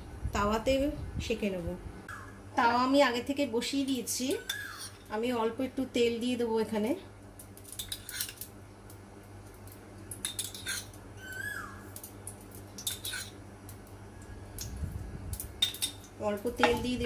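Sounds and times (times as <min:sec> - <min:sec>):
steady low hum: 0:00.0 - 0:17.0
metal spoon clinking on ceramic: 0:12.8 - 0:13.4, 0:15.6 - 0:16.0.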